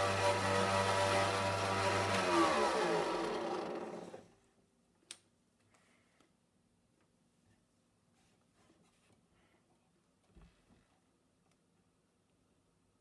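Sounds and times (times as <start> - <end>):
table saw spinning down: 0.0 - 4.3.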